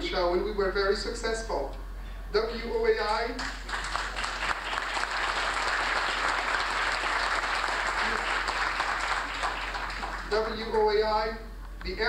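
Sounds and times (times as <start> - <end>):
audience applauding: 3.4 - 10.5.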